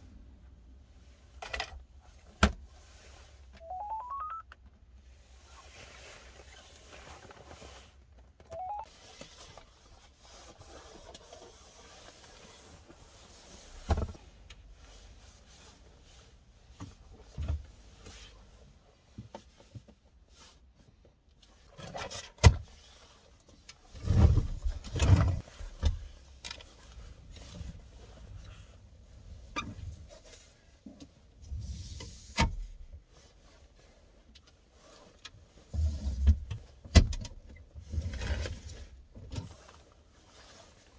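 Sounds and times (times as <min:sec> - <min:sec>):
seat sliding rumble and thuds: 0:23.9 - 0:28.4.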